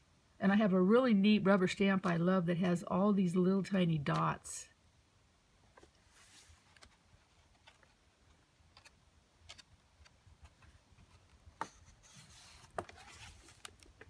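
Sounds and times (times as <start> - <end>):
paper page turning: 5.8 - 8.0, 8.7 - 14.0.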